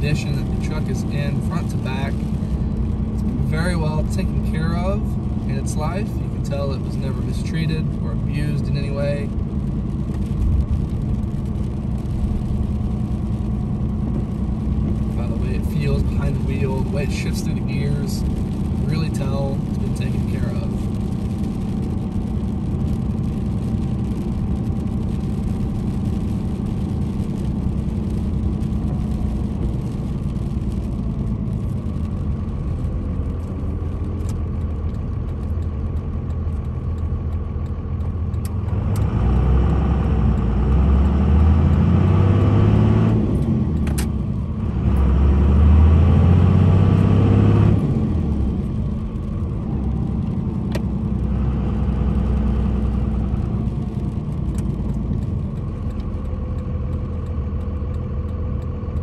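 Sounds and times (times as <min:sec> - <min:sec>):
diesel engine running: 0:00.0 - 0:59.0.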